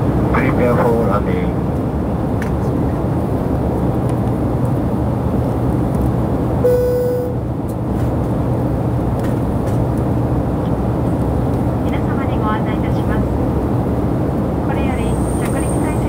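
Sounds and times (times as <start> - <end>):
jet cabin engine rumble: 0.0 - 16.0
short steady tone: 6.6 - 7.5.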